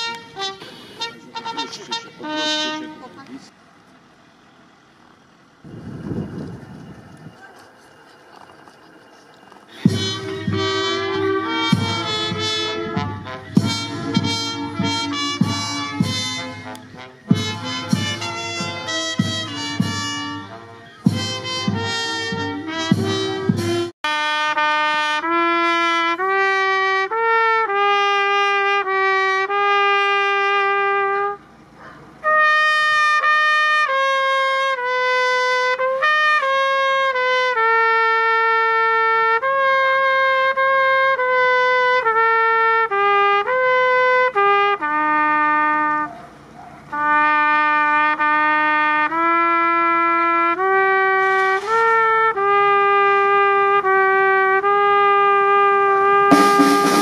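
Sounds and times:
solo trumpet call: 0.0 - 3.3, 9.7 - 31.5, 32.2 - 46.2, 46.9 - 57.0
band music with strong beats: 9.7 - 23.9, 56.3 - 57.0.

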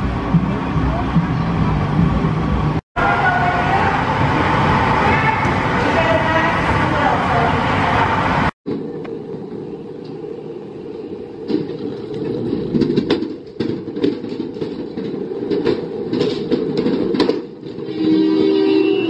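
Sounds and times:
ride car wheel rumble: 8.7 - 18.0
irregular clacks and knocks: 11.4 - 17.9.

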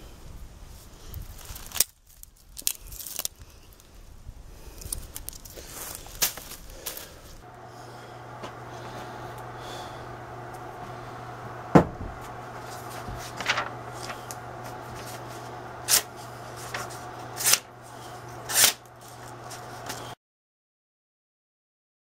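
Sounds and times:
low shop hum: 5.7 - 20.2
knife slicing paper: 12.5 - 20.1.

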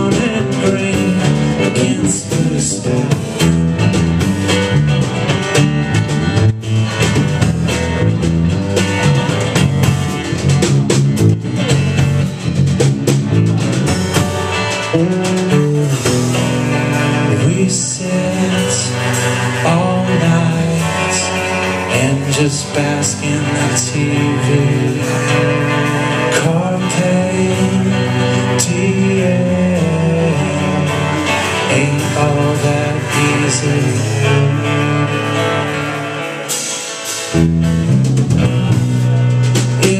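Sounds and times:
person singing: 0.0 - 4.0, 14.6 - 37.0, 38.6 - 39.9
acoustic guitar strumming: 0.0 - 39.9
drum kit: 0.0 - 39.9
electric guitar: 0.0 - 39.9.

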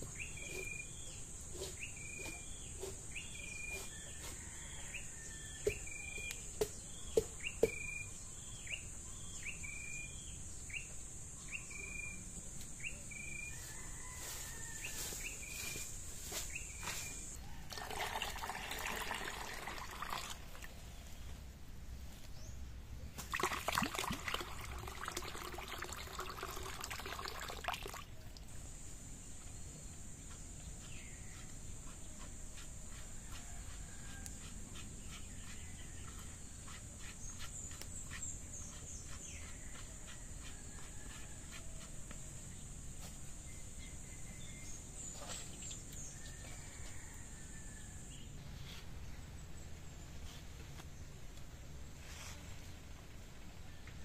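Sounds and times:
bird chirps: 0.0 - 4.3
water pouring into plastic pitcher: 17.7 - 20.7, 23.2 - 28.1.

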